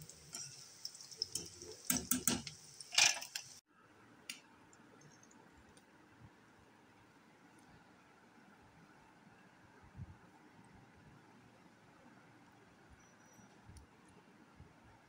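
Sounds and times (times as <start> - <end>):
food deep-frying in oil: 0.0 - 3.6.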